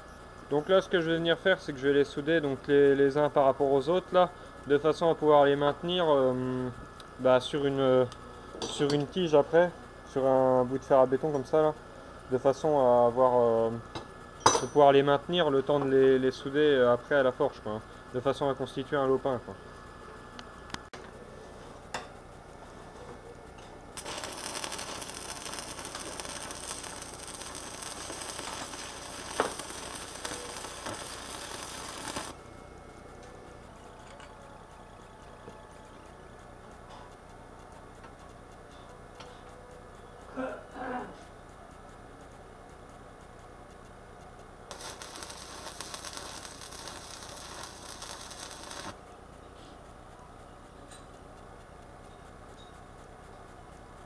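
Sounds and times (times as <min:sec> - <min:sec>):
arc welding crackling sizzle: 0:00.0 - 0:54.0
welding arc crackling and sizzling: 0:23.4 - 0:34.2, 0:43.2 - 0:50.4.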